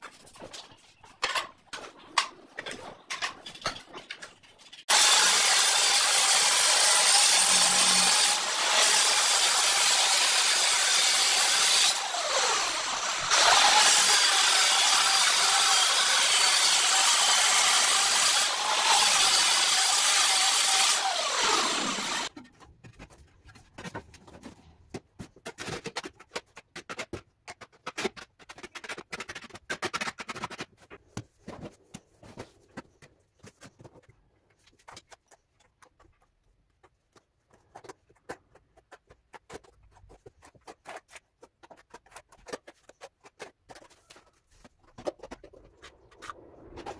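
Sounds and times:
angle grinder cutting tile: 4.9 - 22.4
trowel scraping adhesive: 37.5 - 46.9.

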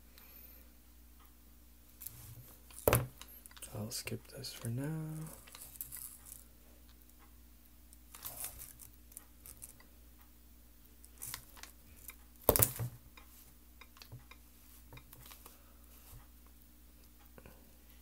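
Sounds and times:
faint steady hum: 0.0 - 18.0
crinkling rustle: 4.4 - 7.0, 8.1 - 9.9.

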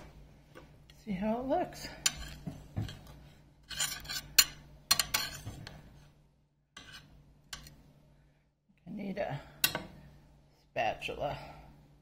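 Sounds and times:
dishes and cutlery clinking: 1.9 - 5.8.

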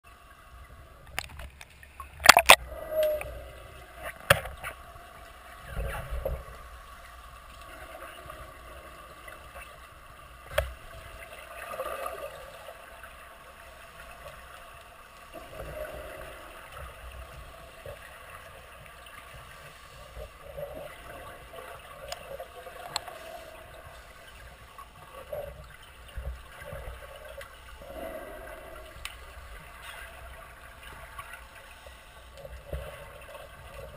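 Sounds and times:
sharp clicks and knocks: 1.1 - 2.6
muffled underwater rumble: 2.1 - 33.9.

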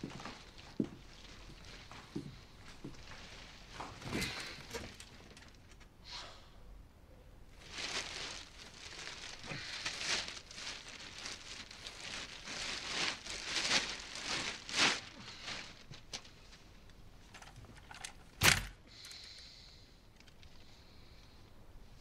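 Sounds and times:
cloth rustling: 0.0 - 5.9, 7.6 - 18.4.

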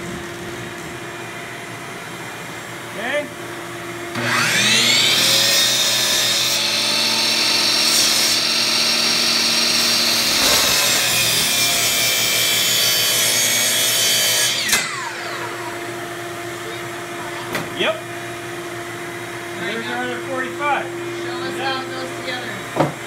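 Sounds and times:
miter saw whining: 4.1 - 16.7
saw blade cutting wood: 4.2 - 15.6.

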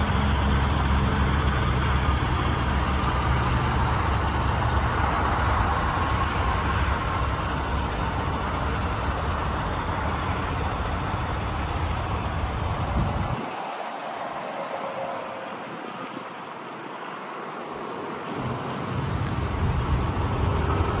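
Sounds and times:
diesel engine idling: 0.0 - 14.1.

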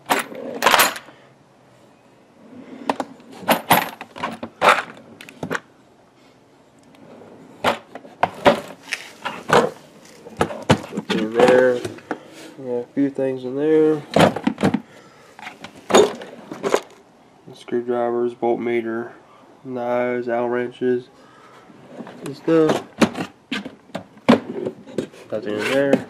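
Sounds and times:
plastic drawers opening and shutting: 0.0 - 1.1, 2.8 - 5.6, 7.6 - 12.2, 14.0 - 14.8, 15.4 - 17.0, 22.0 - 26.0.

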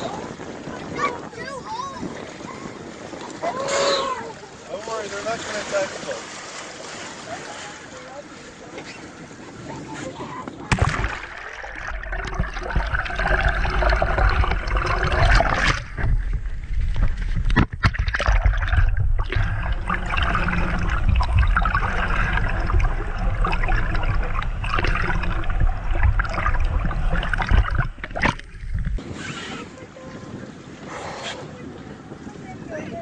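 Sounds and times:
water churning underwater: 0.0 - 33.0
crackling bubbles: 10.6 - 29.0.

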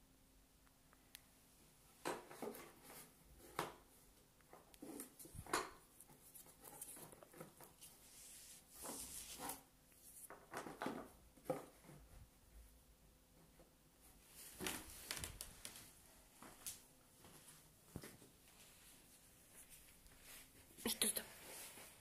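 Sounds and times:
rustling: 4.8 - 12.3.

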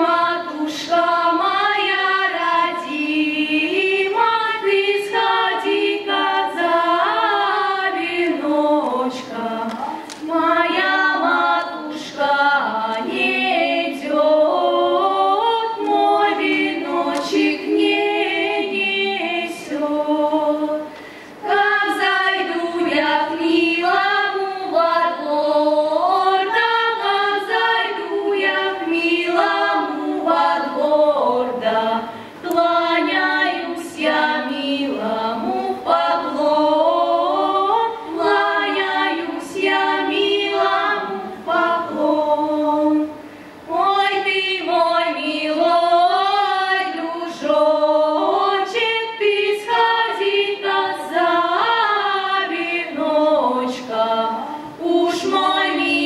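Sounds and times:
girls singing folk song a cappella: 0.0 - 56.0.

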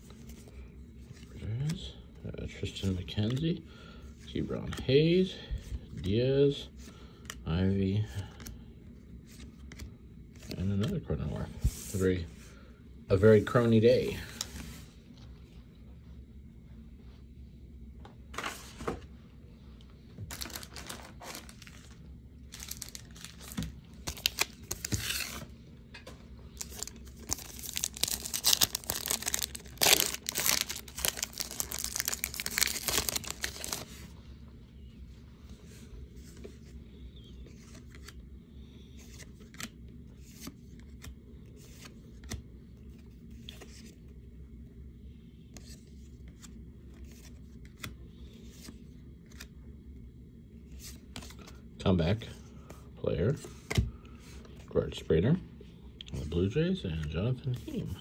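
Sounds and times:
foil wrapper tearing and crinkling: 22.5 - 25.3, 26.6 - 33.8.

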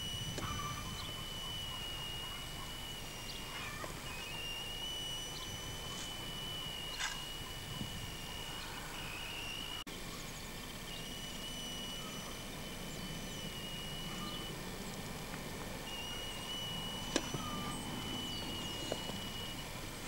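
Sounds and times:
thin high tone: 0.0 - 9.9
steady hiss: 0.0 - 20.0
sharp click: 17.1 - 17.5.

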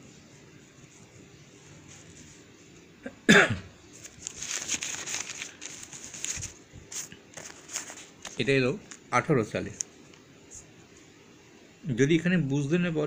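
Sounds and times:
person coughing: 3.0 - 3.7
paper pages turning: 3.9 - 9.1.

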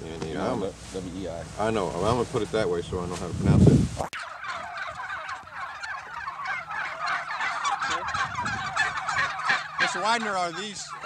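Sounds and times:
flock of turkeys calling: 0.2 - 3.3, 4.0 - 11.0.

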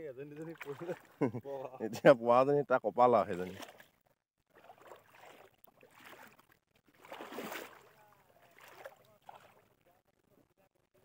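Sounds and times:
water sloshing from wading: 0.1 - 1.8, 3.0 - 10.0.

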